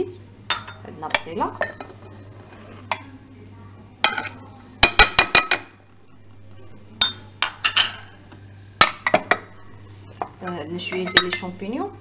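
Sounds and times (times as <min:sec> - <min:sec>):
glass bowls clinking: 0:00.5 - 0:02.3, 0:07.0 - 0:08.2, 0:10.2 - 0:11.7.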